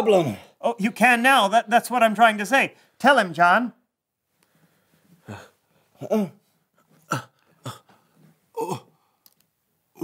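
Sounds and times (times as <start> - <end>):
man grunting: 5.3 - 6.4, 7.1 - 7.9, 8.5 - 9.0.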